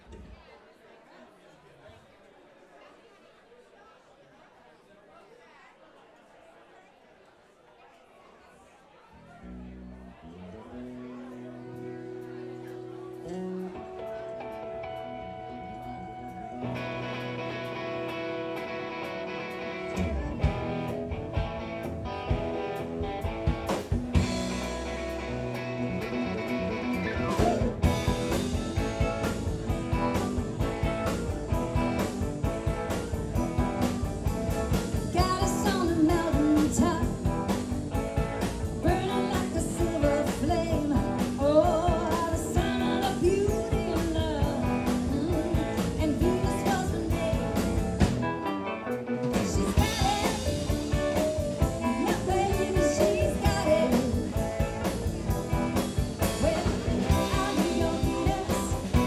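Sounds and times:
bass guitar: 0:09.3 - 0:59.0
keyboards: 0:10.6 - 0:59.0
electric guitar: 0:10.8 - 0:59.0
drum kit: 0:19.8 - 0:59.0
woman singing lead: 0:35.0 - 0:37.4, 0:38.7 - 0:48.0, 0:49.3 - 0:54.7, 0:56.2 - 0:59.0.

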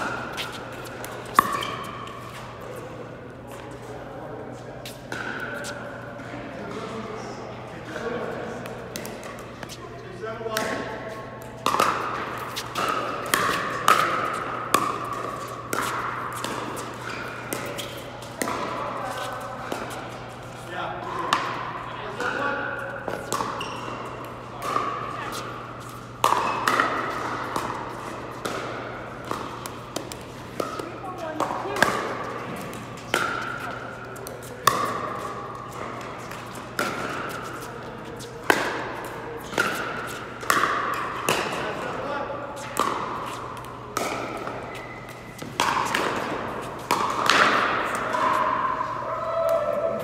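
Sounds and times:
paddle hitting plastic ball: 0:45.4 - 0:48.3.

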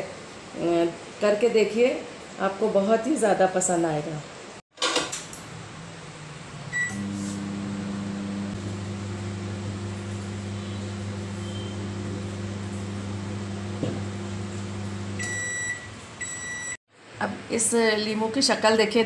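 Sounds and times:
microwave beep: 0:06.7 - 0:07.3, 0:09.3 - 0:13.7, 0:14.3 - 0:16.8
microwave humming: 0:06.7 - 0:16.7.

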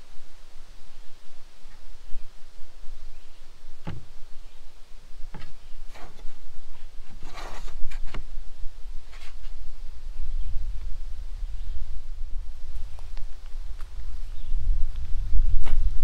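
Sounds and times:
steady low rumble: 0:00.0 - 0:16.0
wood board knocks: 0:03.8 - 0:04.1
wood scraping: 0:03.8 - 0:04.3, 0:05.3 - 0:08.4, 0:09.0 - 0:09.6.

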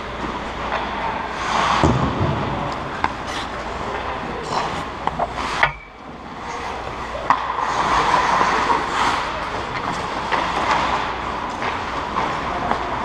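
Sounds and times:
skate blades scraping ice: 0:00.8 - 0:02.0, 0:02.8 - 0:05.6, 0:06.4 - 0:12.5.

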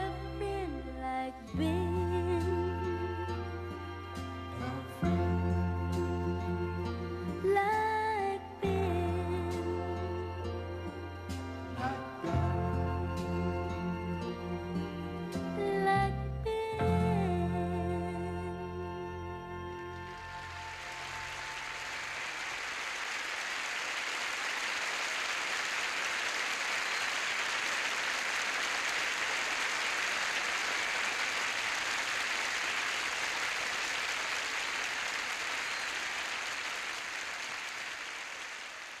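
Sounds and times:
audience applause: 0:19.9 - 0:39.0.

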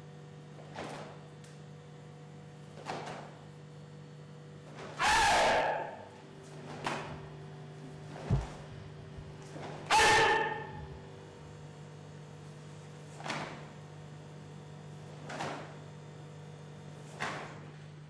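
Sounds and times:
person shouting sharply: 0:05.0 - 0:06.0, 0:09.9 - 0:10.8
bare feet on floor: 0:07.9 - 0:09.9.

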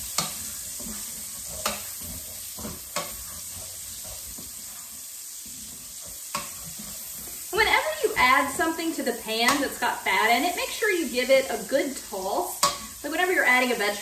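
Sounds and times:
tongs clacking against pan: 0:00.0 - 0:04.8, 0:05.9 - 0:07.1, 0:12.6 - 0:13.0
shallot sizzling in fat: 0:00.0 - 0:14.0.

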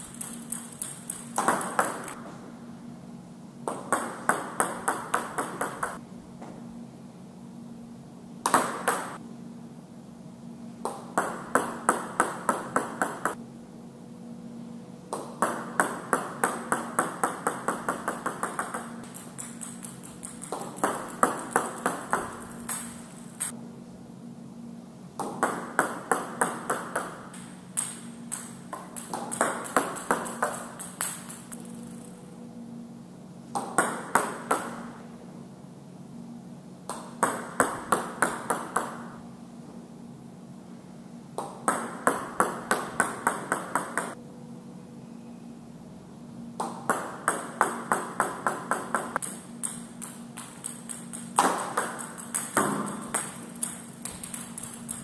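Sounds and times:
ping pong ball bouncing: 0:00.0 - 0:02.2, 0:03.7 - 0:06.0, 0:08.5 - 0:09.2, 0:10.8 - 0:13.4, 0:15.1 - 0:23.5, 0:25.2 - 0:32.2, 0:33.6 - 0:35.0, 0:36.9 - 0:39.1, 0:41.4 - 0:44.2, 0:46.6 - 0:55.0.

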